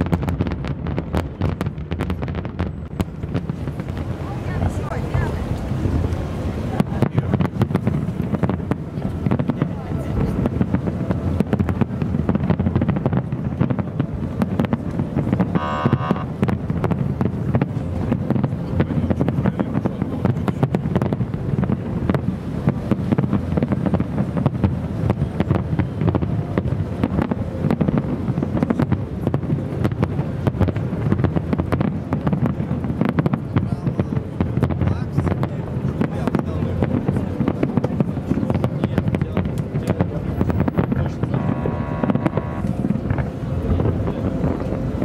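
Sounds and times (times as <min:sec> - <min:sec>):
distant fireworks popping and crackling: 0:00.0 - 0:45.0
steady rumble: 0:00.0 - 0:45.0
wind on microphone: 0:00.0 - 0:45.0
brief pitched tone: 0:15.6 - 0:16.3, 0:41.3 - 0:42.7.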